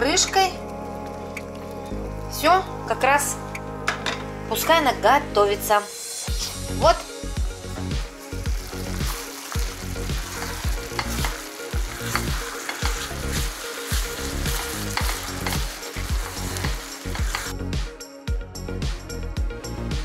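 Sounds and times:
food sizzling in a frying pan: 8.0s - 17.5s
wooden spatula scraping a pan: 8.9s - 17.5s.

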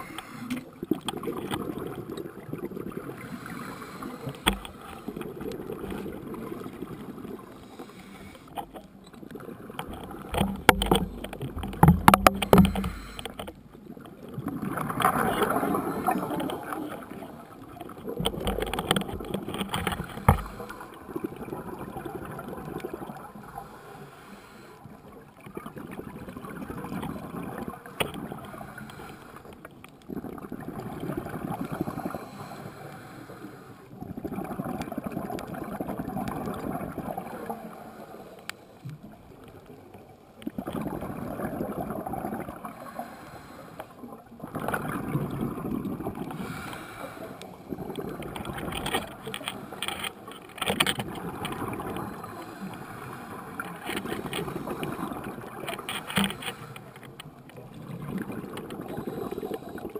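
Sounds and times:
diver inhaling through regulator: 0.0s - 0.8s, 3.2s - 5.3s, 7.4s - 8.6s, 12.2s - 13.6s, 23.6s - 24.8s, 28.4s - 29.6s, 31.5s - 33.9s, 42.8s - 44.0s, 46.2s - 48.6s, 51.8s - 57.1s, 58.8s - 59.9s
faint clicks: 0.0s - 2.3s, 4.0s - 6.7s, 7.9s - 21.0s, 27.0s - 30.1s, 38.3s - 39.8s, 46.2s - 57.8s
regulator bubbles gurgling: 0.0s - 23.8s, 24.8s - 32.7s, 33.9s - 38.0s, 38.9s - 43.3s, 43.9s - 59.9s.

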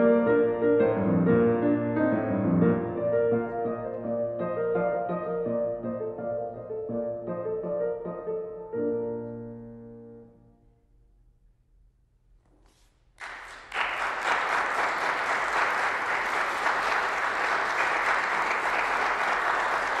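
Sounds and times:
audience applauding: 13.2s - 20.0s.

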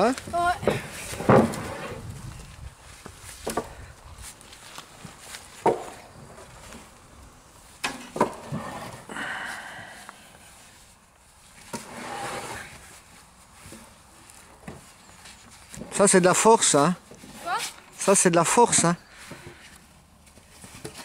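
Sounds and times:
wood scraping and shuffling: 0.0s - 21.0s
logs knocking on wooden deck: 5.6s - 6.0s.

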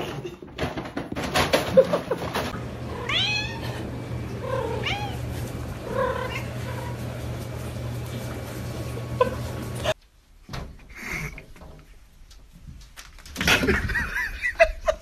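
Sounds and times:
cat meowing: 2.9s - 3.7s, 4.4s - 5.2s.

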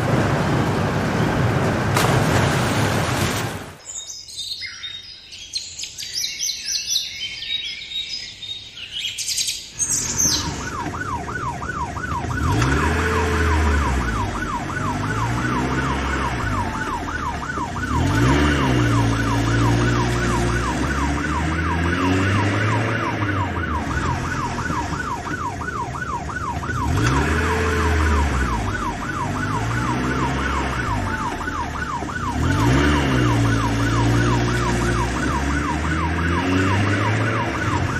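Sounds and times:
birds chirping: 3.8s - 10.8s
fast-warbling siren: 10.1s - 37.9s.

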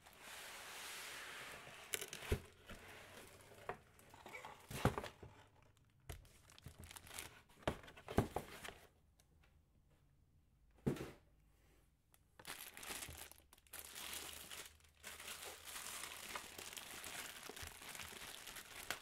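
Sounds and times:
crinkling packaging wrap: 5.6s - 7.5s, 12.4s - 19.0s.

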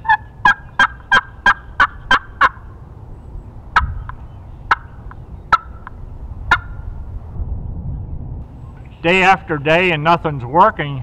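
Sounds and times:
turkey call yelps: 0.0s - 2.6s, 3.8s - 6.8s.

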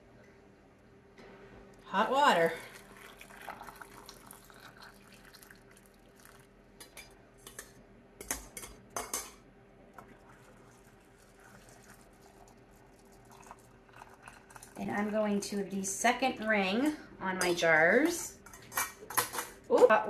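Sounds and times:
water trickling into jar: 2.3s - 7.0s, 10.1s - 15.1s.

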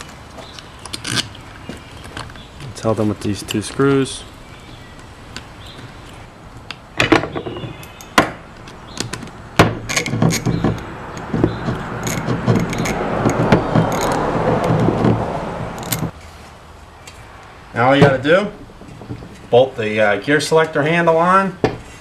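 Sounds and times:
sharp metal knocks: 7.0s - 16.1s
socket ratchet clicking: 9.9s - 15.1s, 15.8s - 16.1s.

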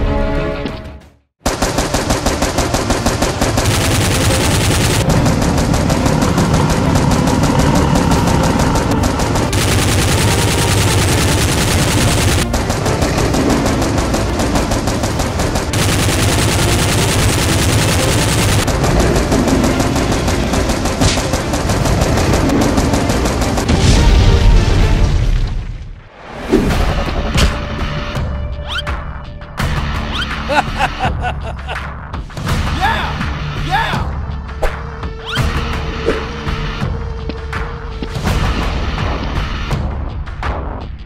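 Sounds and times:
rapid automatic gunfire: 1.4s - 23.8s.

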